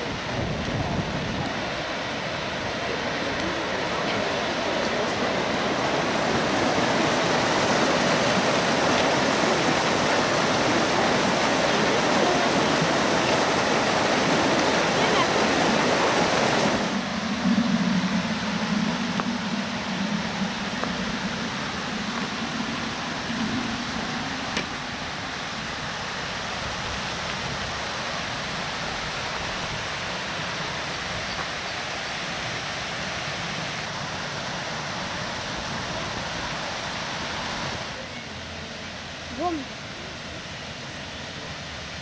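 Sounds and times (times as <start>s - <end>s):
fountain water splashing: 0.0s - 42.0s
low hum: 2.1s - 26.9s.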